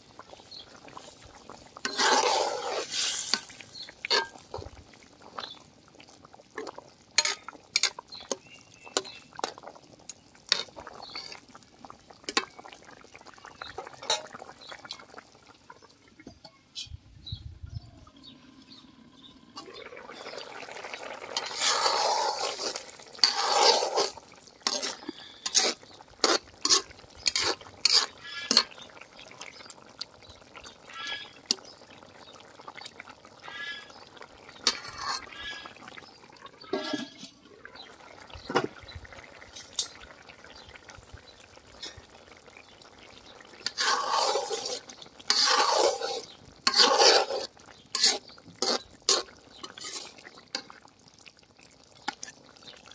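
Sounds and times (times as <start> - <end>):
ladle scraping pot: 0.3 - 4.8, 6.6 - 9.6, 10.4 - 11.5, 19.6 - 28.9, 34.5 - 40.0, 43.6 - 50.8.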